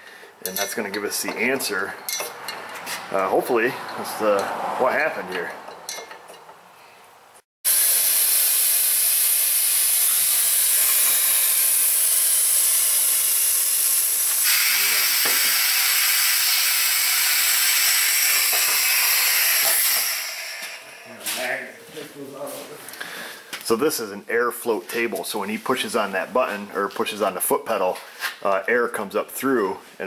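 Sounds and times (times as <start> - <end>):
compressed air hissing: 7.7 - 15.5.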